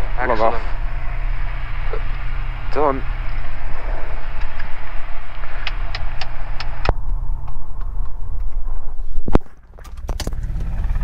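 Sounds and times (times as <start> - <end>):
aircraft engine idling: 0.0 - 11.0
sharp clicks: 4.3 - 8.7.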